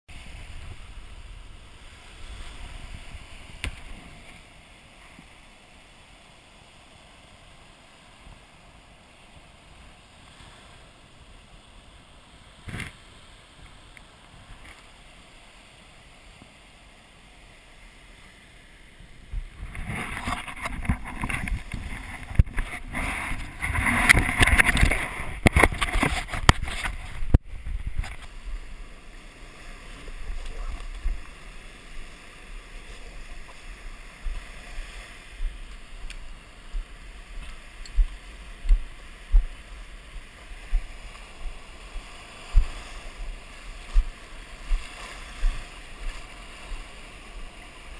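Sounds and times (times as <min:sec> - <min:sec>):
faint surf: 0:00.1 - 0:47.9
camera rubbing against gear: 0:19.6 - 0:28.4.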